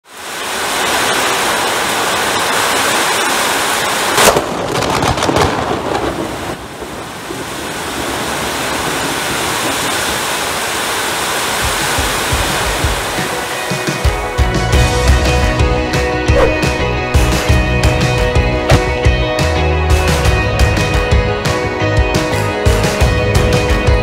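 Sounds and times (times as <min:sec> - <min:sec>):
heavy rain: 0:00.0 - 0:15.4
thunder crack: 0:04.2 - 0:08.4.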